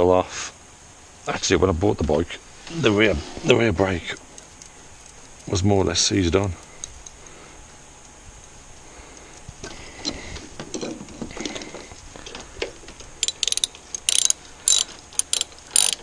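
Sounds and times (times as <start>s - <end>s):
tool scraping and rattling: 9.7s - 16.0s
ratchet wrench clicking: 13.2s - 16.0s.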